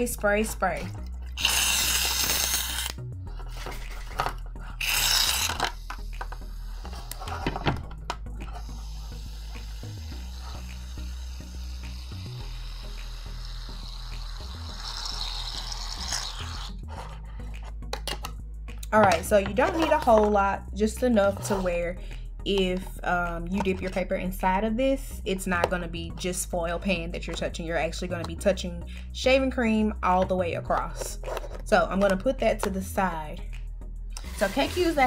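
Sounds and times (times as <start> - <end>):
aerosol can spraying foam: 1.4 - 2.9, 8.5 - 16.7, 34.2 - 35.0.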